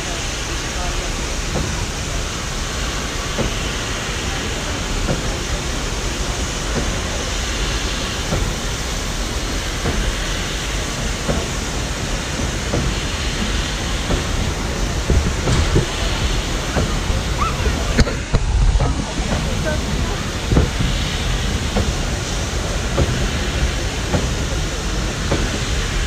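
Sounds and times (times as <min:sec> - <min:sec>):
steam locomotive hiss: 0:00.0 - 0:26.0
low rumble: 0:14.4 - 0:22.4.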